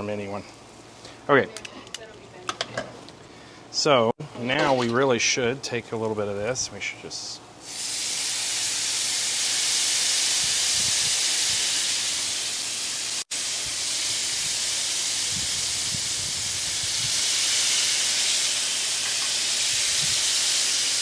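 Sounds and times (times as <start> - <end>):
tacos sizzling on a griddle: 7.6 - 21.0.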